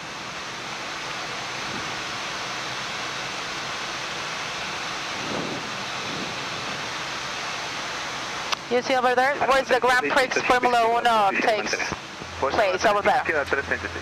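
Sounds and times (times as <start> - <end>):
airflow and engine noise: 0.0 - 14.0.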